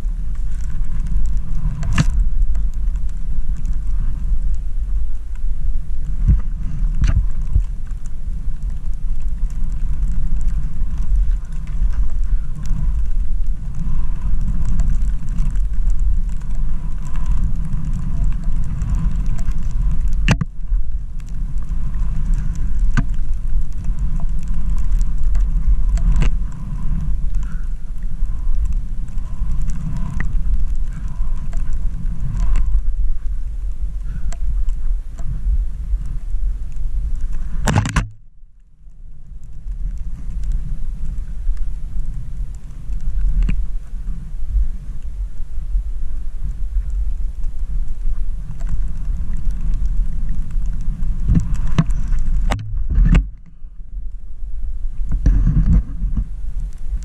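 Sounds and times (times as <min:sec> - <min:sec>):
wind buffeting microphone: 0:00.0 - 0:38.4, 0:39.0 - 0:57.0.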